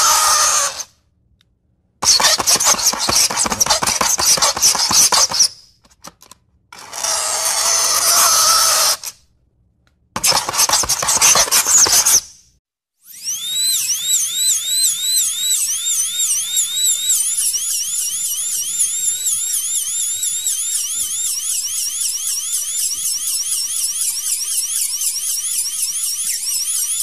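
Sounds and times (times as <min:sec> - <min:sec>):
fingernails scraping chalkboard: 0:02.0 - 0:05.5, 0:10.2 - 0:12.3.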